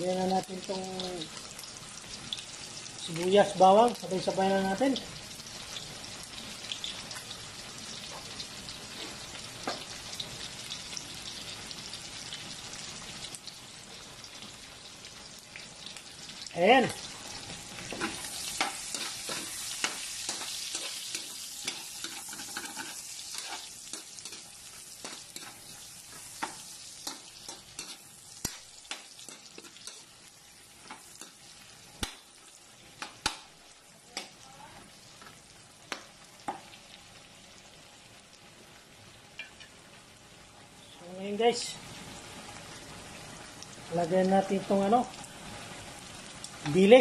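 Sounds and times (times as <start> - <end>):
food sizzling in hot oil: 0.0 - 47.0
utensil scraping a pan: 17.8 - 25.6.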